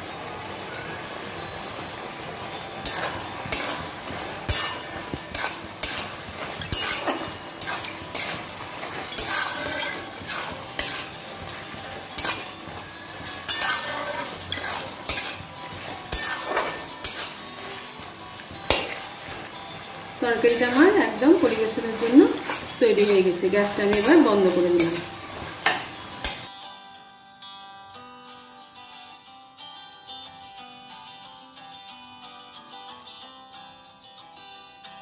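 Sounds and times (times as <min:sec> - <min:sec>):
curry sizzling: 0:00.0 - 0:26.5
metal spatula scraping a metal pan: 0:02.8 - 0:26.5.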